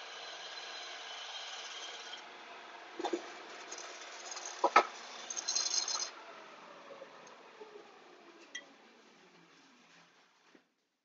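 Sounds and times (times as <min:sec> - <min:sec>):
sanding disc spinning: 0:00.0 - 0:02.2, 0:03.0 - 0:06.1
knife grinding on abrasive: 0:03.5 - 0:06.1.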